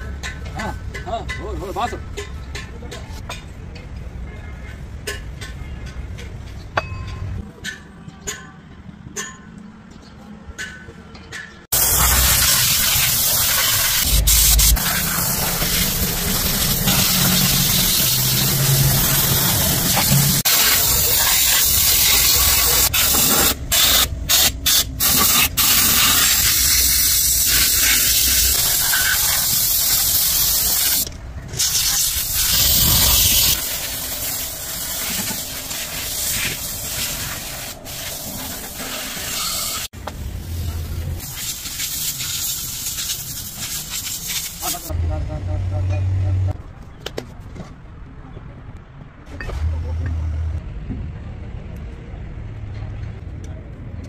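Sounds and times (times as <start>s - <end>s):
high-pressure spray hissing: 11.7s - 39.9s, 41.2s - 44.9s.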